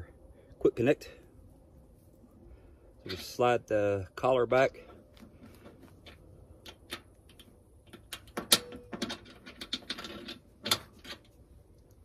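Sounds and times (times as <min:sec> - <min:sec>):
small metal clicks: 0:05.2 - 0:12.0.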